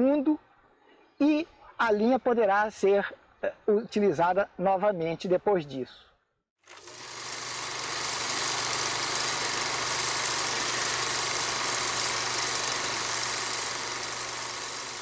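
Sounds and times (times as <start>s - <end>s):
film projector whirring and clatter: 6.6s - 15.0s.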